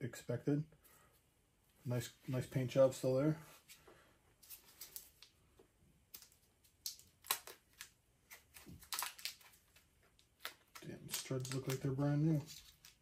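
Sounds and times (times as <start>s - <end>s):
clicks and crinkles of unwrapping: 6.1s - 13.0s.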